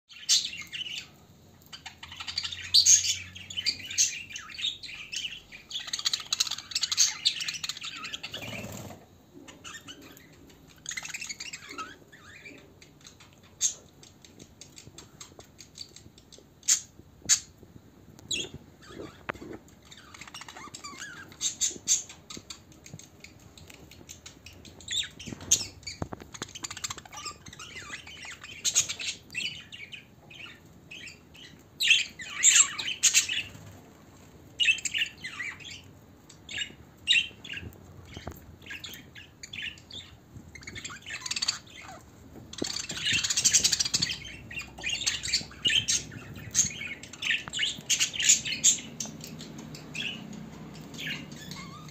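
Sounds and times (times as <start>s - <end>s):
budgerigars chattering: 42.6s - 51.9s.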